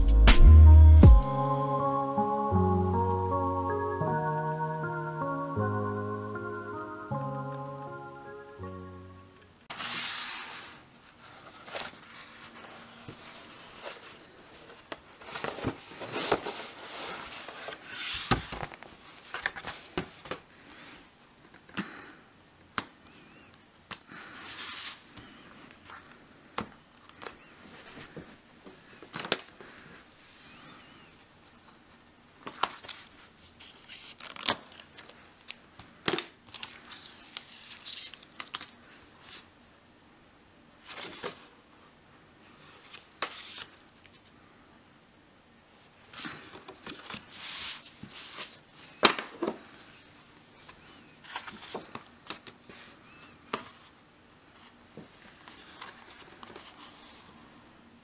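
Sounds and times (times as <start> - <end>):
cardboard and paper rustling: 9.7 - 21.1, 40.8 - 41.6, 46.1 - 57.4.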